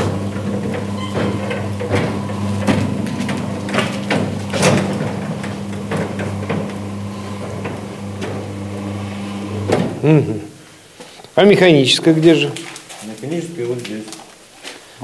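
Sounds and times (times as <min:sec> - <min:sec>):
door panels clicking and knocking: 0:00.0 - 0:06.8
garage door motor hum: 0:00.0 - 0:10.3.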